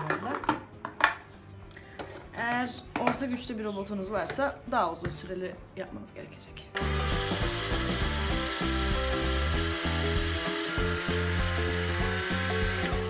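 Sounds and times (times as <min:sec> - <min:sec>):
food processor grinding nuts: 0:06.8 - 0:13.0.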